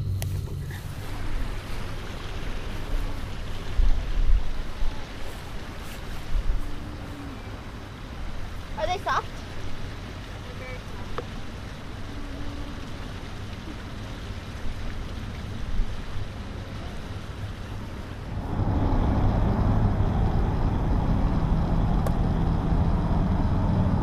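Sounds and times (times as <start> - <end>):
wind buffeting microphone: 0.0 - 10.2.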